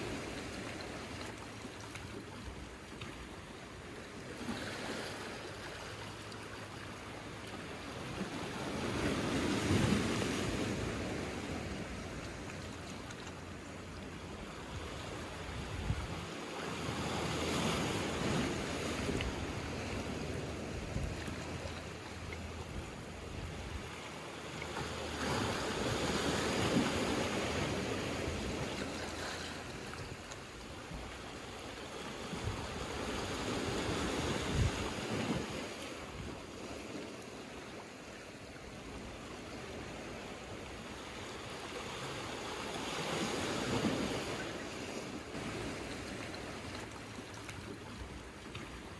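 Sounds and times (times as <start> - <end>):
sea waves washing over rocks: 0.0 - 48.9
wind buffeting the microphone: 15.3 - 16.3, 32.3 - 36.4.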